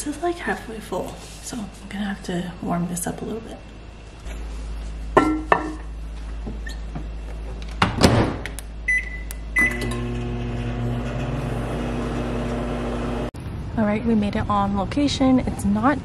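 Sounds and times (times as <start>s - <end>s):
microwave oven humming: 8.8s - 13.4s
keypad beeps: 8.9s - 9.8s.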